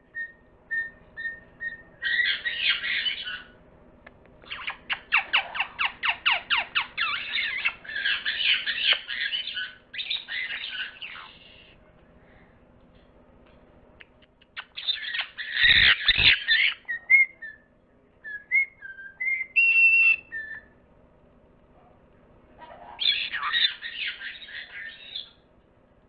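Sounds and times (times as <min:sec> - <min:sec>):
parrot squawking: 0:00.2 - 0:03.6, 0:04.4 - 0:11.7, 0:14.6 - 0:17.6, 0:22.6 - 0:25.4.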